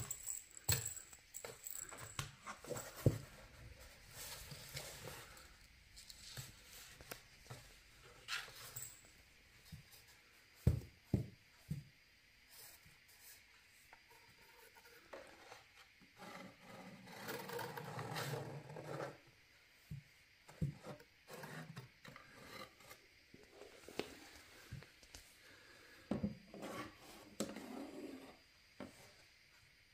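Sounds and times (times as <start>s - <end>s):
scraping and rubbing on cardboard: 26.5s - 28.4s.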